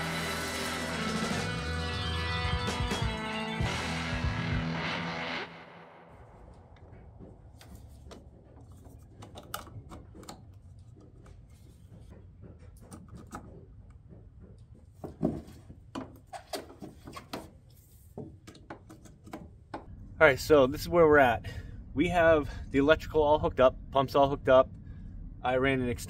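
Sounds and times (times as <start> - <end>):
low rumble: 19.9 - 26.0.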